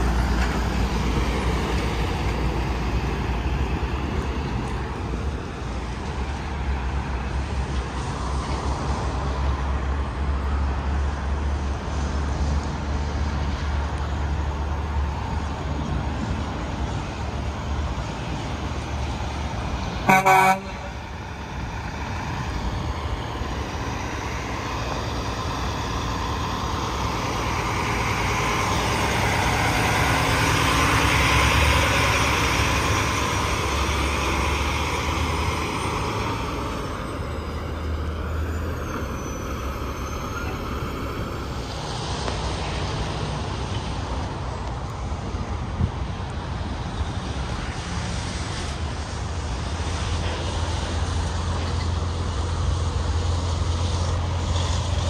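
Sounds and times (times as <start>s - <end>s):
vehicle passing by: 0.0s - 44.5s
highway traffic rumbling: 0.0s - 55.0s
short horn toot: 20.1s - 21.0s.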